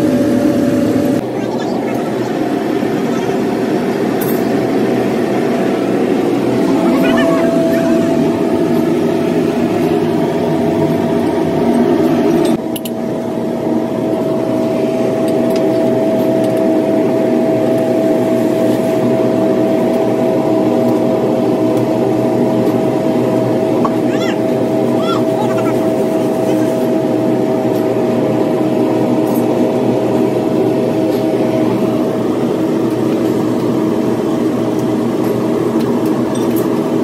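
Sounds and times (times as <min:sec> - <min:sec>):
workshop machinery rumble: 0:00.0 - 0:12.6
high machine whine: 0:00.0 - 0:37.0.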